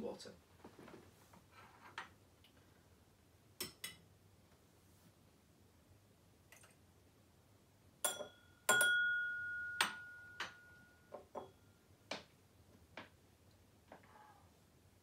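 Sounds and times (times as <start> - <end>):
glasses clinking: 8.0 - 11.6.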